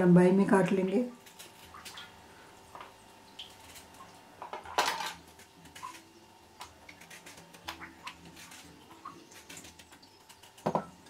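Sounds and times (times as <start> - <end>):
utensils clattering: 4.4 - 6.0
knife and peeler on carrot: 6.8 - 9.9.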